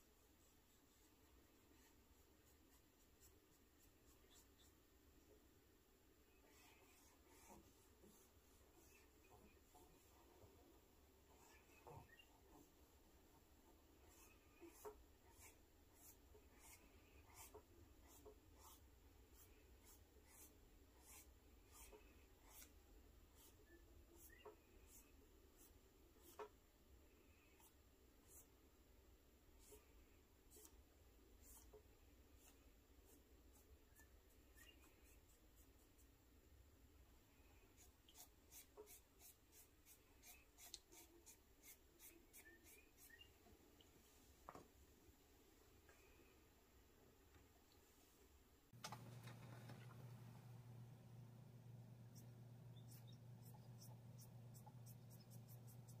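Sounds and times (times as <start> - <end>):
cotton swab scratching paper: 6.4 - 10.3, 14.0 - 26.5, 30.5 - 30.8, 37.7 - 43.3, 52.1 - 56.0.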